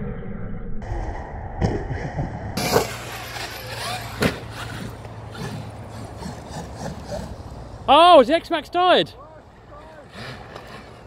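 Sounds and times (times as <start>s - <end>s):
rc truck motor whining: 2.6s - 7.9s, 9.7s - 11.0s.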